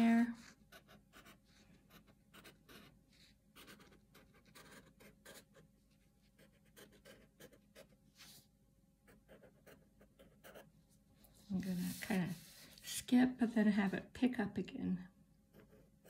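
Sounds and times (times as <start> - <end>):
pencil scratching on paper: 0.1 - 5.6, 6.3 - 8.4, 9.1 - 10.7, 11.5 - 12.9, 15.5 - 16.0.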